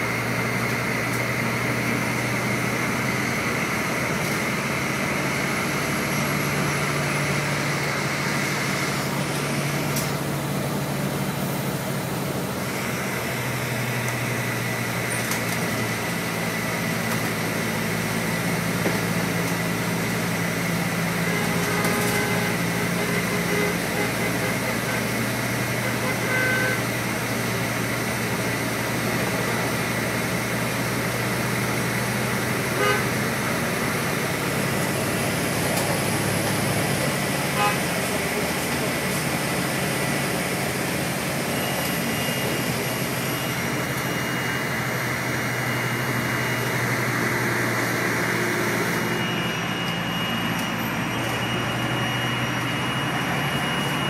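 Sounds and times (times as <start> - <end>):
vehicle engine and tyres droning: 0.0 - 54.0.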